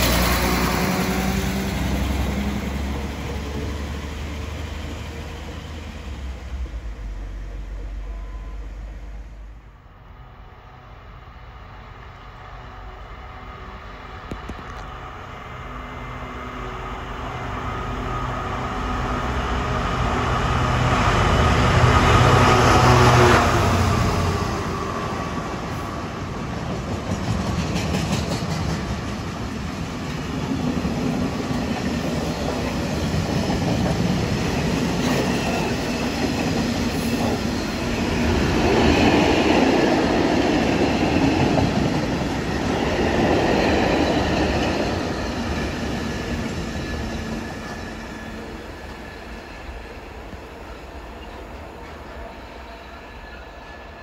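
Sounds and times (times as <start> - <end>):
diesel locomotive engine hum: 0.0 - 54.0
train wheels clicking over rail joints: 26.4 - 39.3.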